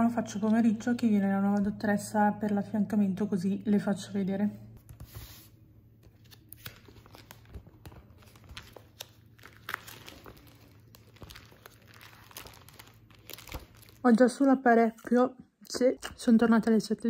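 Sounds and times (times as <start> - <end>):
plastic sheets crinkling: 4.9 - 15.2.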